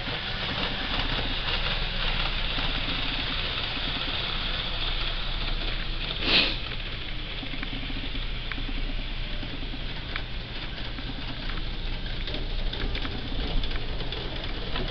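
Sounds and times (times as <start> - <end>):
model train running: 0.0 - 14.9
short loud hiss: 6.2 - 6.6.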